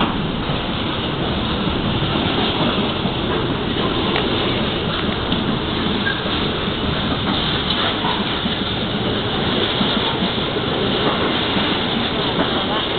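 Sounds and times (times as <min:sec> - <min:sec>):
freight train rolling over rails: 0:00.0 - 0:12.9.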